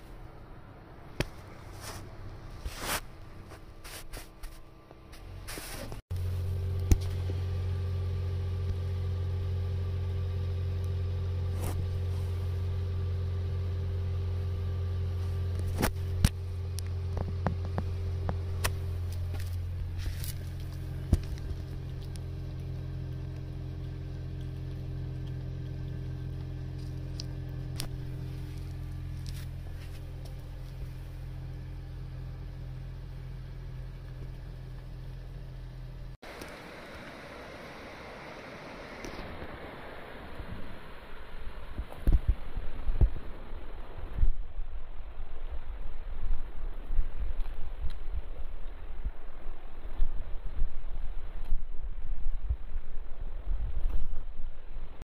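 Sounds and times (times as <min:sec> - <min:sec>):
machine humming: 0:06.1 - 0:40.2.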